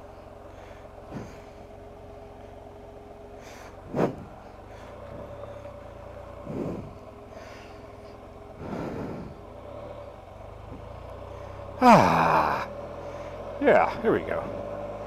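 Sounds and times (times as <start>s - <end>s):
motorcycle engine humming: 0.0s - 15.0s
short noisy puffs: 0.6s - 1.6s, 3.4s - 9.5s.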